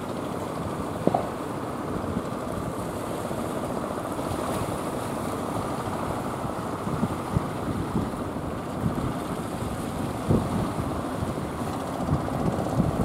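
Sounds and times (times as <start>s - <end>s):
surf washing: 0.0s - 13.0s
wind buffeting microphone: 3.8s - 13.0s.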